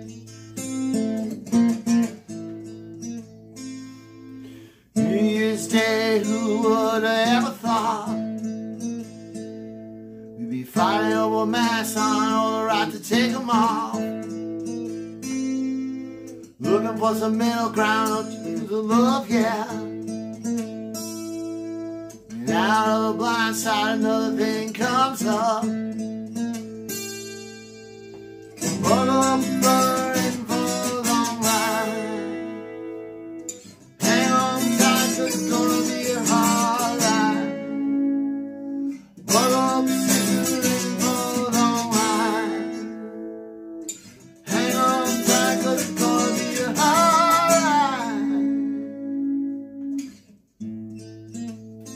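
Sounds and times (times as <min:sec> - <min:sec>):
acoustic guitar strummed chords: 0:00.0 - 0:51.9.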